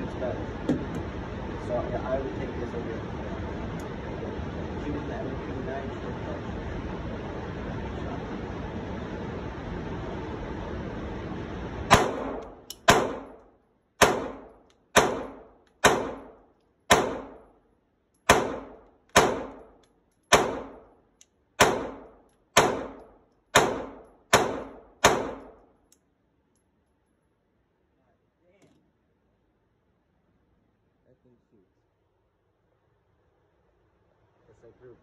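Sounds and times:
pistol shots echoing indoors: 11.9s - 13.4s, 14.0s - 17.5s, 18.2s - 21.0s, 21.6s - 25.7s.

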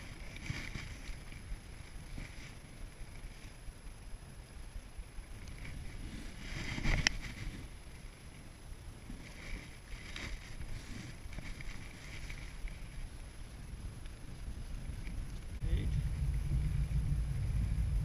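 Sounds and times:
clothing rustle: 0.0s - 3.5s, 5.6s - 7.7s, 9.1s - 13.0s
fishing rod and reel handling: 0.0s - 3.6s, 5.4s - 7.7s, 9.1s - 13.0s
wind buffeting microphone: 13.4s - 18.0s.

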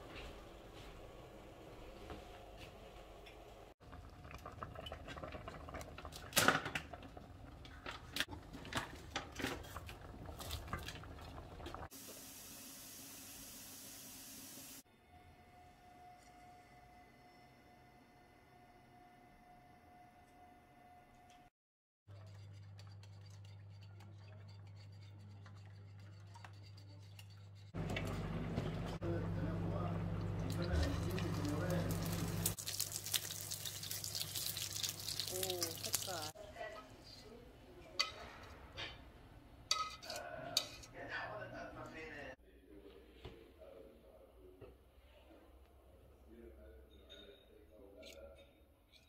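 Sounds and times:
soup simmering: 3.8s - 12.6s, 27.8s - 36.4s
spatula scraping pot: 22.1s - 28.3s, 39.7s - 41.0s.

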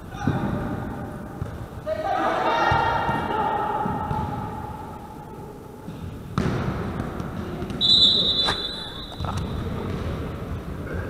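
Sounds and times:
volleyball struck with a thud: 6.3s - 7.0s
referee's whistle blast: 7.8s - 9.3s.

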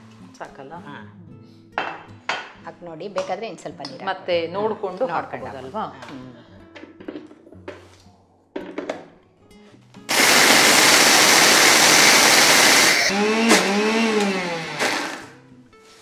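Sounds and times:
mixer-grinder whirring: 10.1s - 15.4s.

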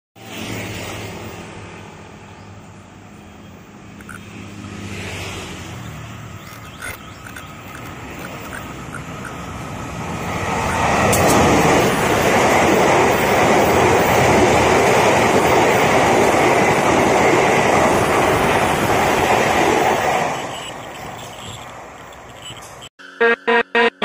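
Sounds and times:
diesel locomotive engine: 0.2s - 24.0s
sharp clicks: 4.0s - 4.3s, 6.4s - 9.4s.

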